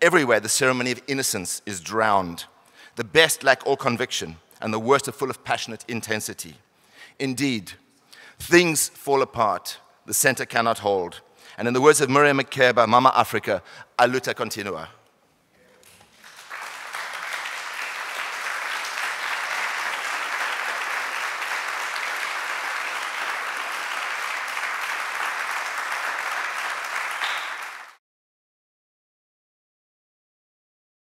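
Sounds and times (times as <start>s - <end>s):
audience applauding: 16.1s - 28.0s.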